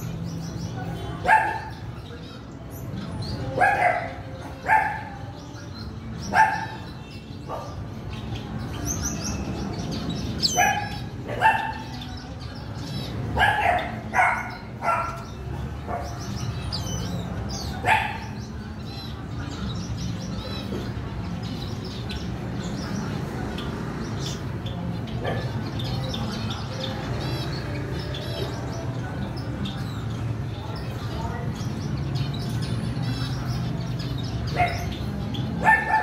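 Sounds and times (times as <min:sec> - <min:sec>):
cage birds chirping: 0:00.0 - 0:36.0
dog barking: 0:01.2 - 0:01.8, 0:03.5 - 0:05.2, 0:06.2 - 0:07.9, 0:10.4 - 0:12.0, 0:13.4 - 0:16.3, 0:17.8 - 0:18.4, 0:34.5 - 0:36.0.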